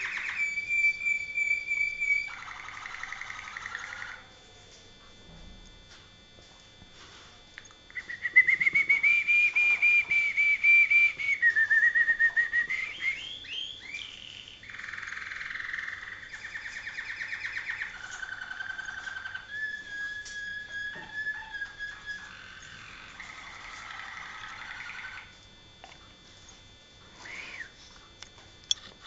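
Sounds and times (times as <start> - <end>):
canary singing: 0.0 - 4.4, 7.6 - 25.5.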